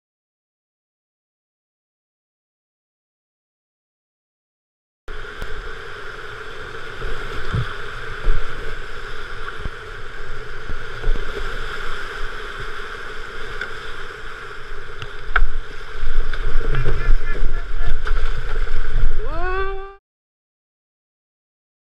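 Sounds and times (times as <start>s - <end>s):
whitewater rushing: 5.1s - 20.0s
wind buffeting microphone: 14.6s - 19.8s
low water thumps: 16.2s - 19.2s.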